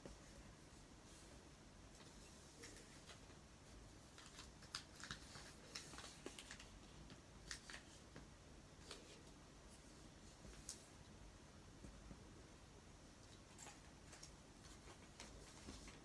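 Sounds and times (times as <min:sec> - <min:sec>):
paper rustling while folded: 0:02.0 - 0:08.2, 0:08.8 - 0:10.9, 0:13.3 - 0:16.0.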